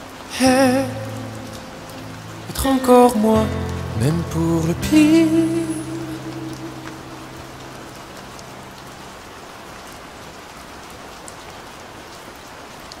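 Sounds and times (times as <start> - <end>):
song low held notes: 0.0 - 9.0
steady rain falling: 0.0 - 13.0
raindrop ticks: 0.3 - 13.0.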